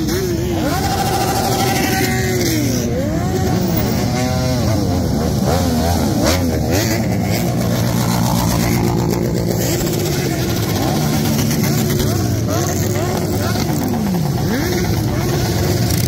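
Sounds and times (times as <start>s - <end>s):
motorcycles riding past: 0.0s - 16.0s.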